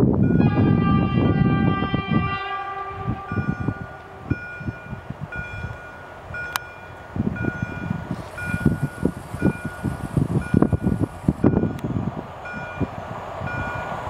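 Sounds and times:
wind buffeting microphone: 0.0 - 14.0
crossing signal chime: 3.0 - 11.8, 12.5 - 12.9.

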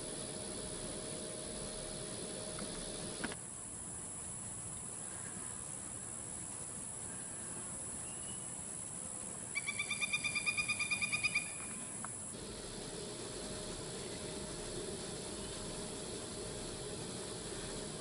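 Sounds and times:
insect drone: 0.0 - 18.0
low hum and hiss: 0.0 - 18.0
bird trill: 9.6 - 11.6.

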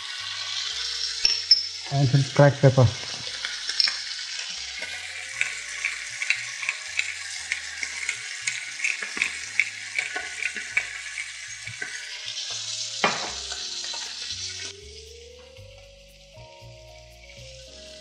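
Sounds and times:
chicken frying in oil: 0.0 - 18.0
pepper mill twisting: 3.0 - 14.6.

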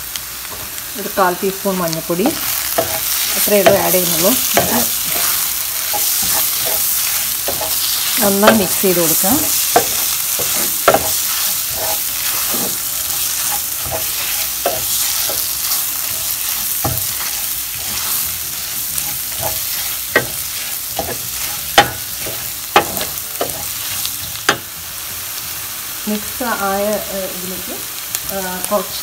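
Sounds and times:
food sizzling in oil: 0.0 - 29.0
spatula scraping a pan: 2.4 - 24.7.

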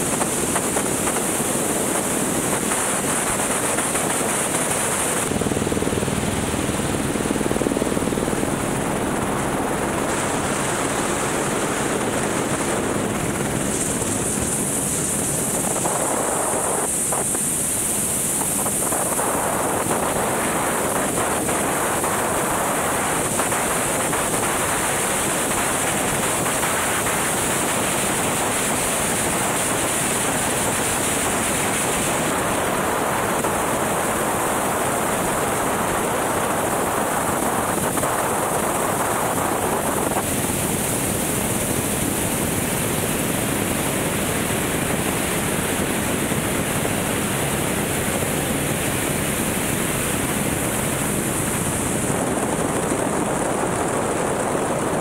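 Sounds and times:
helicopter rotor and engine: 0.0 - 55.0
wind on microphone: 0.0 - 55.0.

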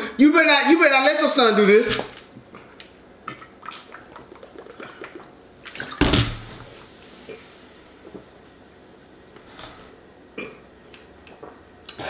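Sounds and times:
swallowing liquid: 2.5 - 6.0.

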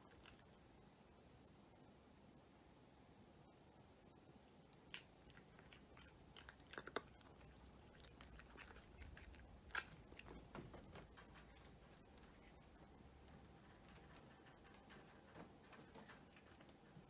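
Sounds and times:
cat crunching dry kibble: 4.7 - 12.6.

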